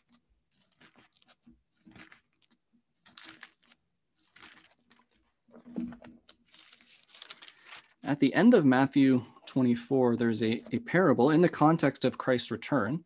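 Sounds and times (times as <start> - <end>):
thin pages turning: 0.0 - 8.2.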